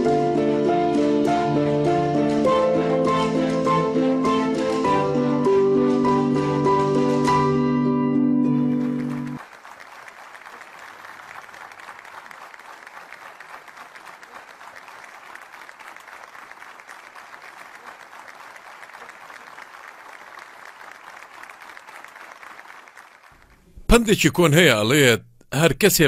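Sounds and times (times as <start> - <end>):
audience applauding: 8.5 - 25.2.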